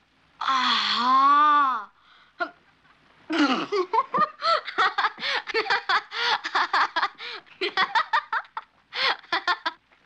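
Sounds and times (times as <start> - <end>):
girl laughing hard: 3.7 - 9.8.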